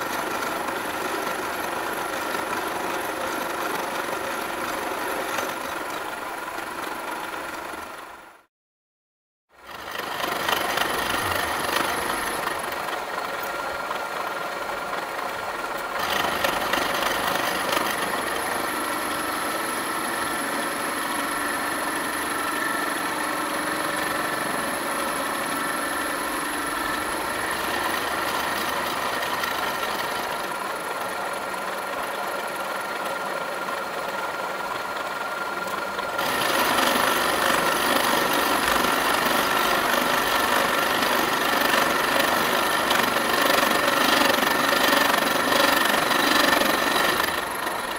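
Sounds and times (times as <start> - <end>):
milling machine cutting metal: 9.8 - 13.6, 15.8 - 30.6, 35.6 - 47.9.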